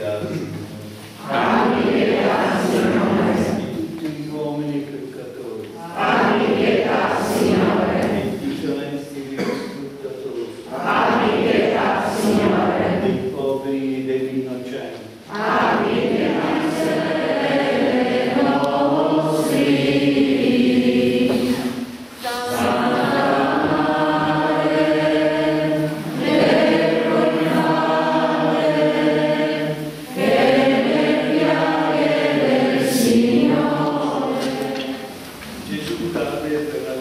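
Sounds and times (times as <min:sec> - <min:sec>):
congregation singing a hymn: 0:00.0 - 0:37.0.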